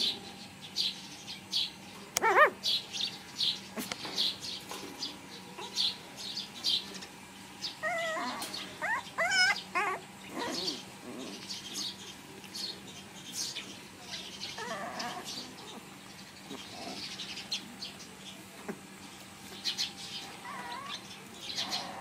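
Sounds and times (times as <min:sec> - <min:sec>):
puppies whining and yelping: 0:02.2 - 0:02.5, 0:07.7 - 0:11.5, 0:14.5 - 0:15.9, 0:20.3 - 0:21.0.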